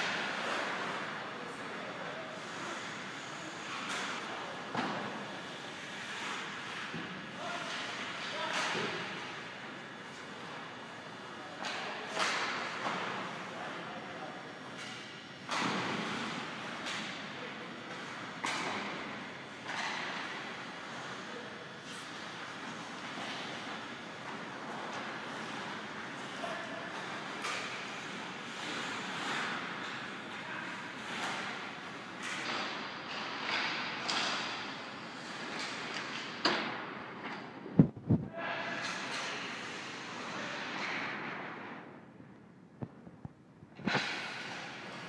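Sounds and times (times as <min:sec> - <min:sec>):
hockey sticks and puck clacking: 0:03.6 - 0:05.4, 0:06.0 - 0:09.5, 0:11.6 - 0:13.4, 0:14.6 - 0:17.3, 0:17.9 - 0:21.2, 0:21.8 - 0:37.5
skates scraping ice: 0:21.8 - 0:36.2, 0:43.8 - 0:45.0.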